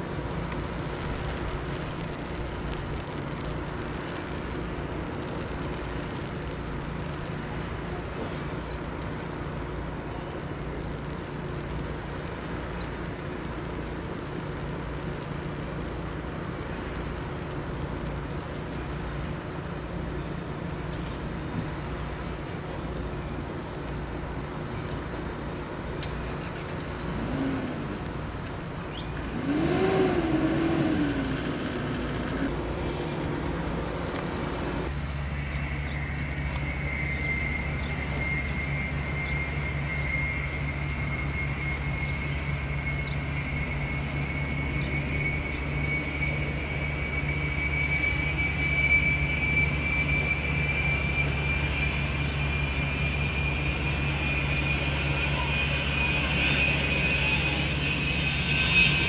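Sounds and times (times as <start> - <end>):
jet engine high whine: 0.0 - 59.0
jet engine low rumble: 0.0 - 59.0
wavering tone: 32.2 - 59.0.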